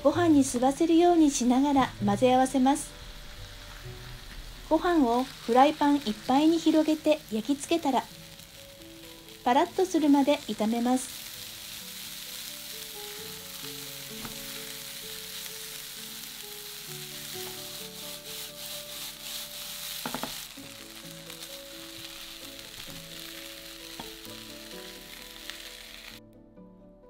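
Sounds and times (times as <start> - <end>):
rice sizzling in a frying pan: 0.0 - 26.2
soft background music: 0.0 - 27.0
spatula knocking on pan: 20.0 - 20.4.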